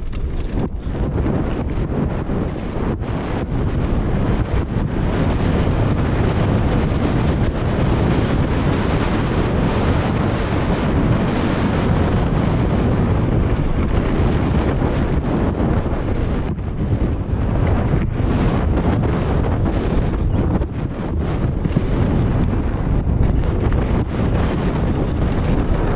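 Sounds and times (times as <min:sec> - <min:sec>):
mountain bike rolling over gravel: 0:00.0 - 0:04.5, 0:11.7 - 0:19.7, 0:23.4 - 0:25.9
wind buffeting microphone: 0:00.0 - 0:25.9.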